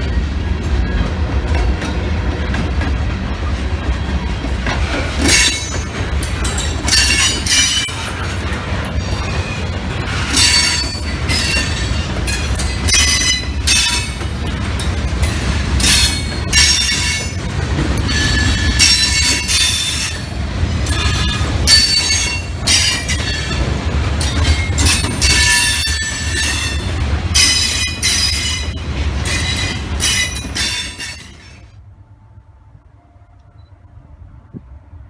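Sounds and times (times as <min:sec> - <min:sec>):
steel wheels squealing: 0:05.2 - 0:14.2, 0:18.0 - 0:23.7, 0:24.3 - 0:31.7.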